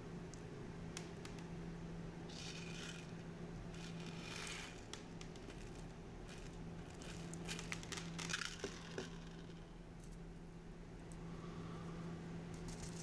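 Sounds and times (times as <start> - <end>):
steady low hum: 0.0 - 13.0
steel balls rattling in wooden box: 5.4 - 9.6.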